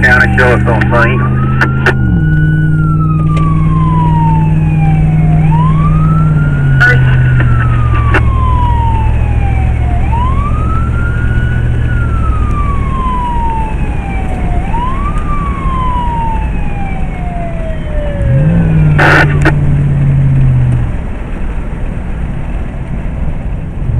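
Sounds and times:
electronic siren wailing: 0:00.0 - 0:19.7
road noise: 0:00.0 - 0:23.9
vehicle engine: 0:00.0 - 0:23.9.

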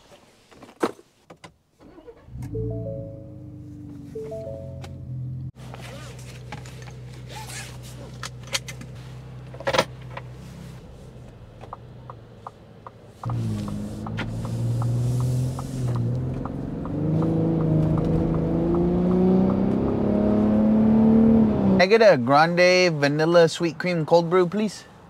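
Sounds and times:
truck engine accelerating: 0:02.0 - 0:08.3, 0:10.2 - 0:21.8
regular ticking: 0:11.6 - 0:20.1.

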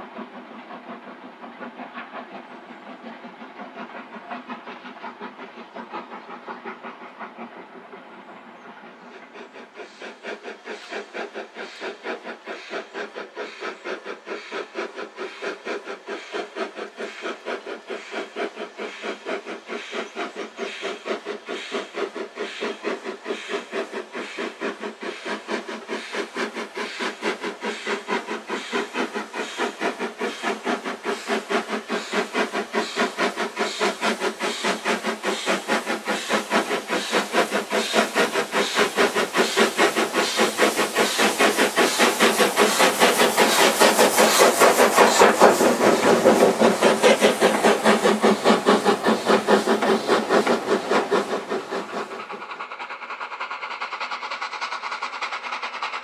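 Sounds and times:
steam locomotive chuffing: 0:00.0 - 0:56.0.

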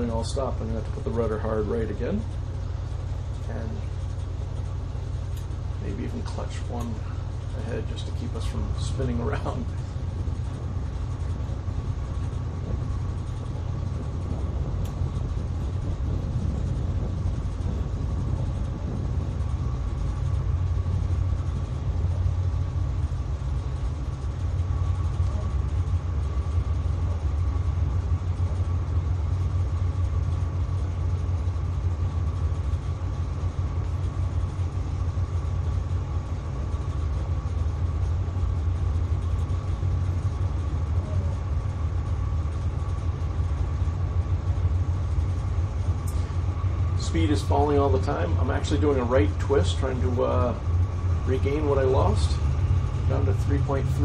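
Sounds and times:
diesel engines rumbling: 0:00.0 - 0:54.0
faint high whine: 0:00.0 - 0:54.0.

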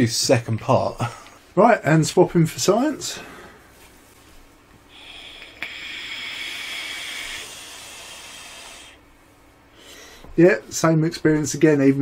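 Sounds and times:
e-cigarette airy hiss: 0:04.9 - 0:09.0.

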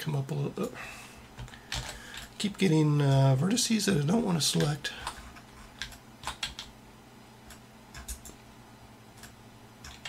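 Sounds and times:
faint steady hum: 0:00.0 - 0:10.0
keyboard and mouse clicks: 0:07.4 - 0:08.4, 0:09.2 - 0:10.0.

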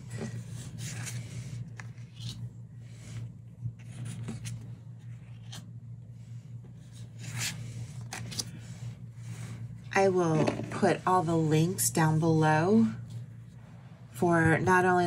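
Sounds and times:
low steady hum: 0:00.0 - 0:15.0
cards sliding across table: 0:00.1 - 0:03.2.

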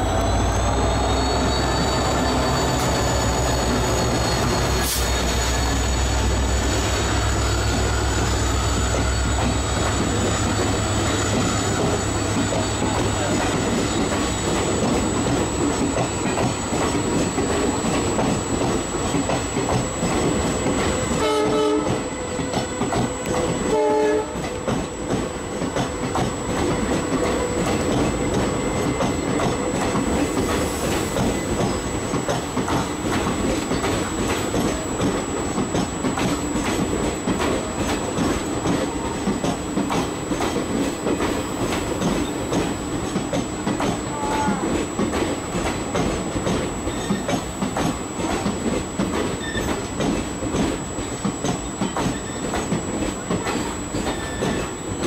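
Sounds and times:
train coaches rolling past: 0:00.0 - 0:55.0
locomotive horn blasts: 0:21.1 - 0:22.1, 0:23.6 - 0:24.4.

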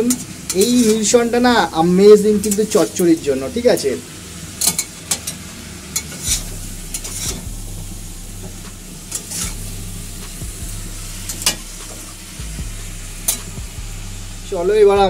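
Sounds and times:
vegetables sizzling in a pan: 0:00.0 - 0:14.8
metal spatula scraping a pan: 0:00.1 - 0:01.3, 0:04.5 - 0:07.5, 0:08.4 - 0:09.8, 0:11.2 - 0:12.2.

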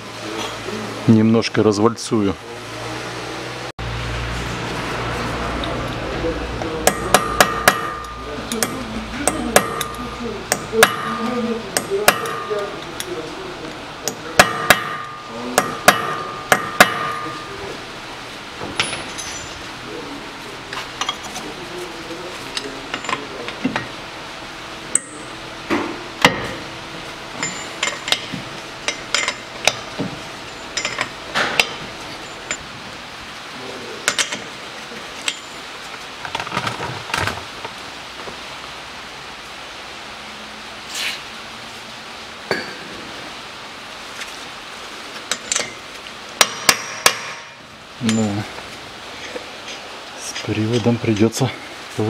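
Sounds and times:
hammer striking chisel on metal: 0:06.8 - 0:12.9, 0:14.0 - 0:17.6, 0:24.9 - 0:25.4, 0:26.2 - 0:26.6, 0:27.4 - 0:30.1, 0:30.7 - 0:31.8, 0:34.0 - 0:34.5, 0:46.4 - 0:48.2.

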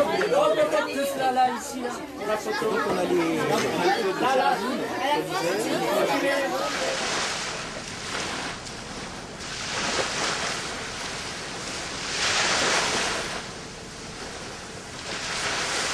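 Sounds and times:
waves washing in: 0:04.6 - 0:15.9.

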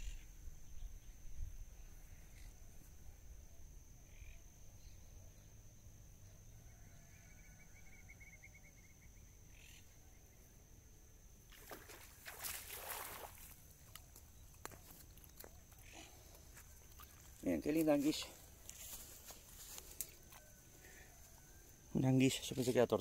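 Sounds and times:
high-pitched insect tone: 0:00.0 - 0:23.0
water splashing: 0:11.5 - 0:14.2.

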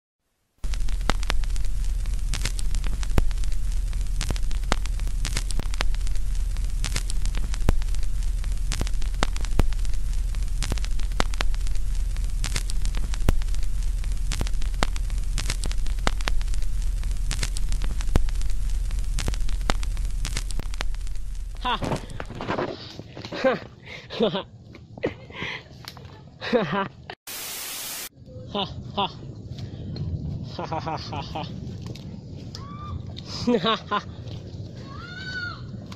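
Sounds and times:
static crackles and pops: 0:00.4 - 0:23.6, 0:27.3 - 0:28.1
low electrical hum: 0:00.6 - 0:22.6.

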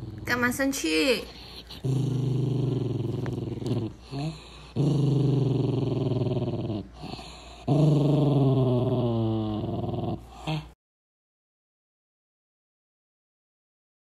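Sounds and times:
dog growling: 0:00.0 - 0:00.6, 0:01.2 - 0:10.8.

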